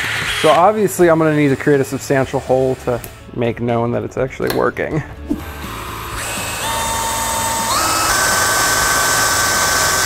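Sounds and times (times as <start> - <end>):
cordless drill motor whine: 5.3 - 10.0.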